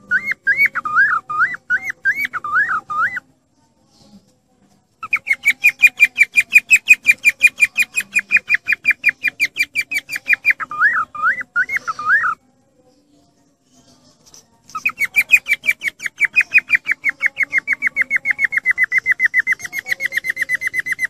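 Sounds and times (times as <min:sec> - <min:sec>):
cockatiel whistling: 0:00.1 - 0:03.2, 0:05.0 - 0:12.4.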